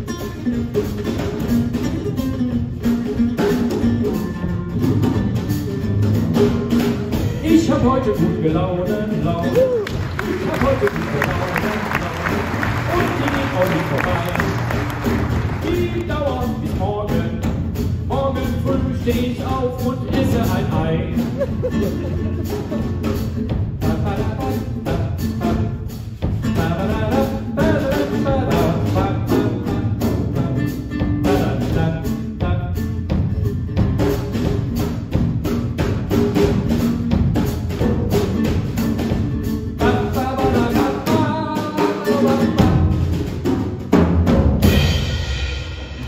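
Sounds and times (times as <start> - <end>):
acoustic guitar: 0.0 - 45.8
drum kit beat: 0.0 - 46.0
applause: 9.8 - 16.1.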